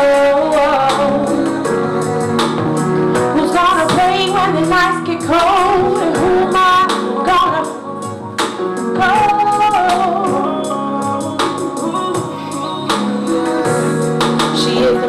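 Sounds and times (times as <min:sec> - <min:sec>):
woman singing soul song: 0:00.0 - 0:08.0, 0:08.8 - 0:15.0
backing music with steady beat: 0:00.0 - 0:15.0.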